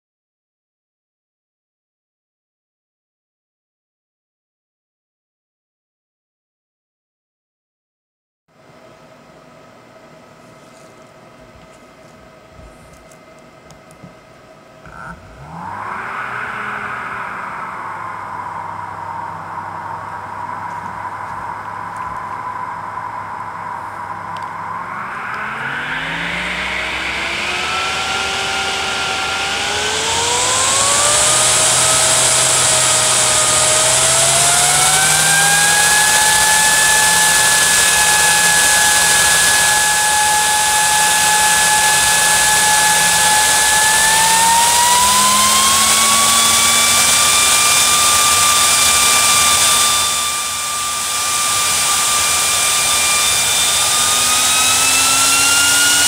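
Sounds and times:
fan air rush with blade whine: 8.6s - 56.0s.

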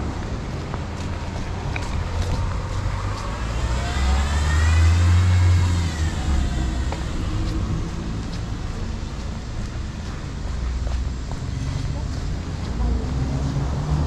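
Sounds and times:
car driving past: 1.8s - 8.6s.

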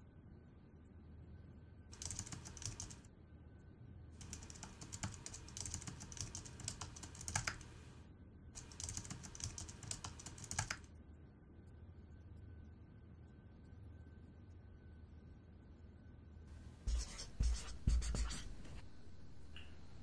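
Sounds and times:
typing on laptop keyboard: 1.9s - 3.1s, 4.2s - 8.0s, 8.6s - 10.9s, 16.9s - 20.0s.

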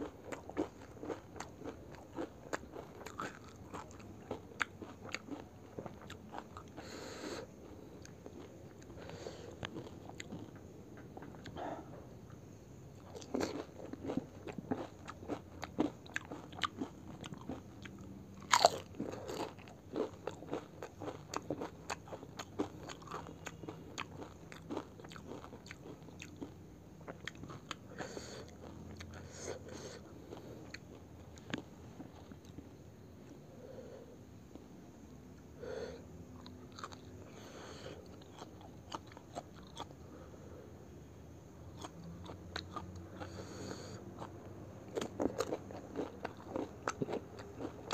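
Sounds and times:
crisp food crunching: 0.0s - 6.8s, 13.0s - 27.8s, 36.4s - 37.1s, 44.9s - 47.9s
wet chewing: 13.1s - 27.8s.

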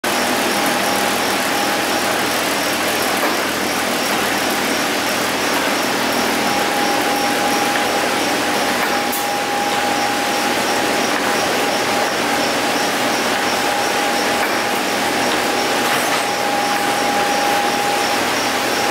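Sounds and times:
machinery running: 0.0s - 18.9s
high-pitched whine: 4.0s - 18.9s.

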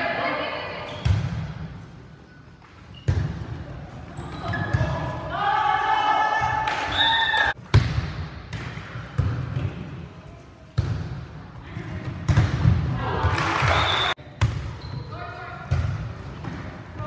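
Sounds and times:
volleyball hits echoing: 6.4s - 10.0s, 12.0s - 14.8s.

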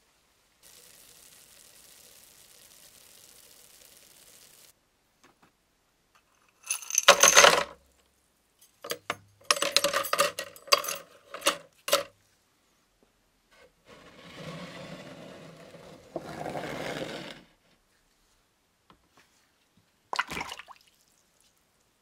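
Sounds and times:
soap foam fizzing hiss: 0.6s - 4.7s
metal parts clinking and rattling: 6.2s - 7.8s, 8.6s - 12.1s
metal parts clattering into liquid: 6.4s - 7.8s, 8.8s - 12.1s.

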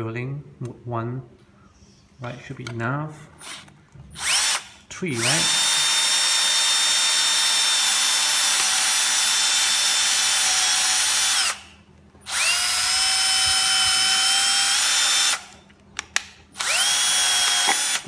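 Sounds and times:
cordless drill whining through plastic: 3.4s - 15.6s, 16.6s - 18.0s.

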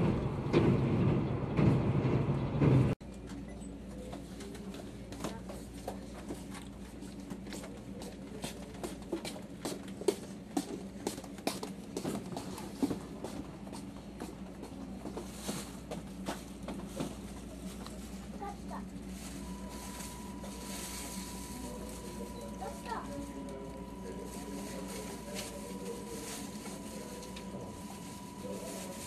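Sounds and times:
train low hum: 0.0s - 29.0s.

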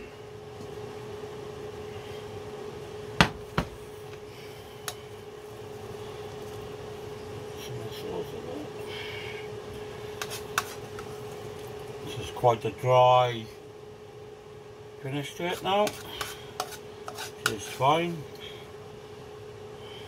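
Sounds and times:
steady hum: 0.0s - 20.0s
metal spoon scraping frying pan: 10.2s - 11.1s, 15.4s - 17.8s.

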